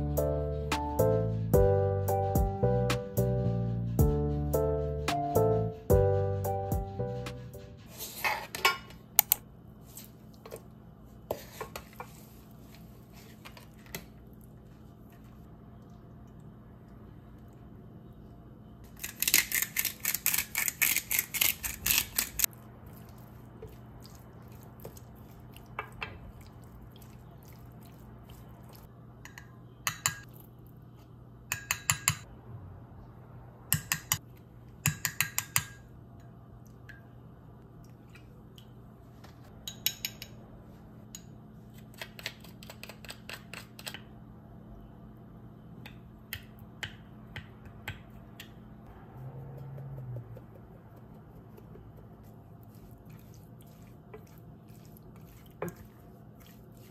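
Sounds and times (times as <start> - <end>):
faint steady hum: 8.8 - 19.4, 35.7 - 56.9.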